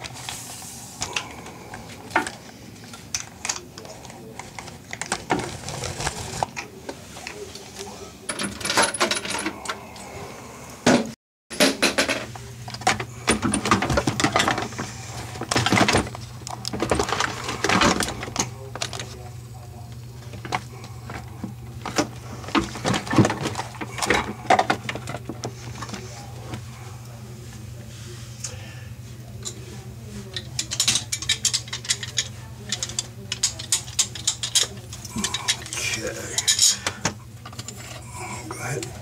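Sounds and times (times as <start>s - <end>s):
metal plumbing parts clattering: 8.3s - 9.8s, 11.5s - 19.2s, 20.3s - 26.6s, 30.4s - 38.1s
steady low hum: 11.8s - 39.0s.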